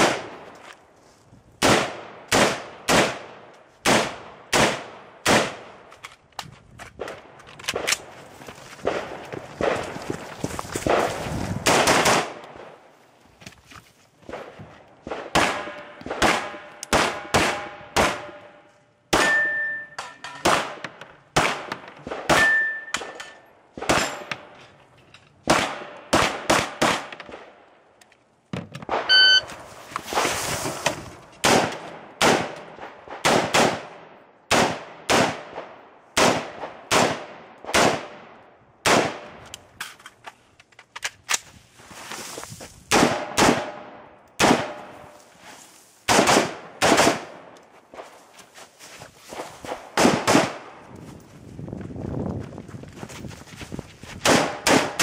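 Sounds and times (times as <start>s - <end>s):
steel targets ringing: 19.2s - 20.4s, 22.4s - 23.4s
shot timer beep: 29.1s - 29.5s
gunshots with echo: 46.1s - 47.5s, 49.6s - 50.8s.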